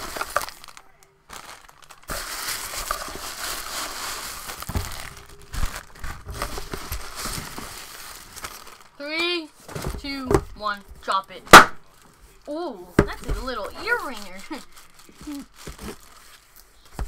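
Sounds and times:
packing paper crinkling: 0.0 - 9.9, 13.3 - 17.0
cardboard rustling: 0.0 - 11.1, 11.9 - 17.0.

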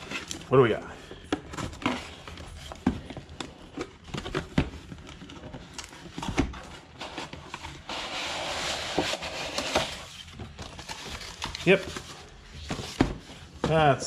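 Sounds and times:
cardboard box scraping: 6.2 - 13.8.

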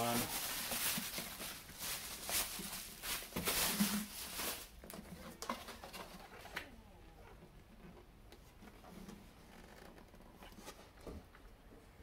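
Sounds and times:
foam wrap rustling and scraping: 0.0 - 6.2.

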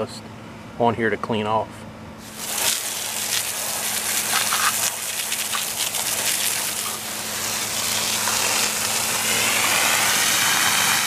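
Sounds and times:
garden hose water spraying wheel: 2.2 - 11.0.

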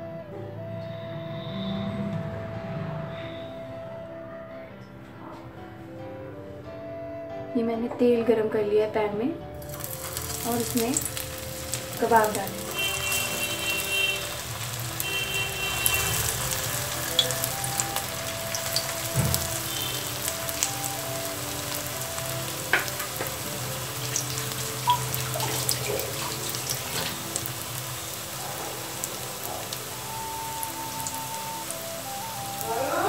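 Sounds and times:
background music: 0.0 - 33.0
food sizzling in hot oil: 9.6 - 33.0.

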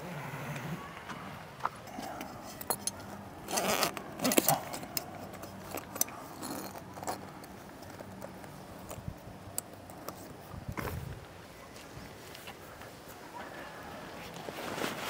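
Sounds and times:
metallic clinks and rattles: 1.9 - 10.2
rustling: 1.9 - 15.0.

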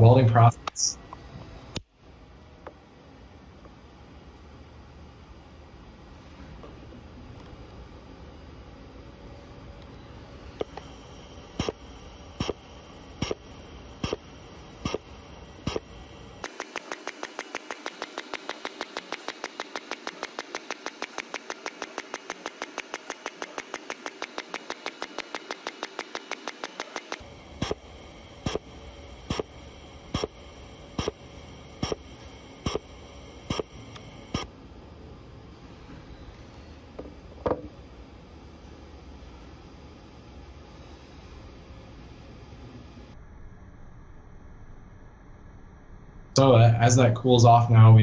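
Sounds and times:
plastic welder clicking: 10.6 - 10.9, 11.5 - 34.5.

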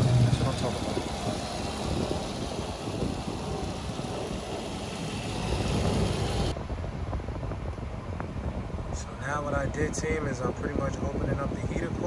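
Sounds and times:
car engine idling: 0.0 - 6.5.

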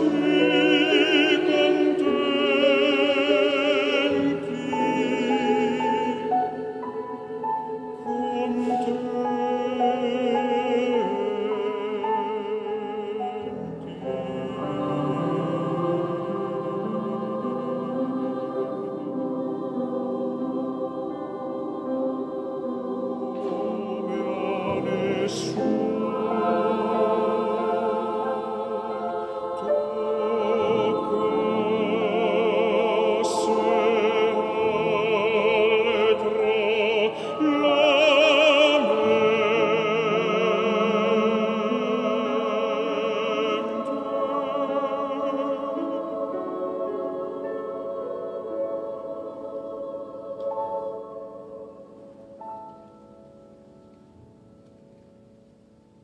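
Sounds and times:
choir holding chords: 0.0 - 56.0.

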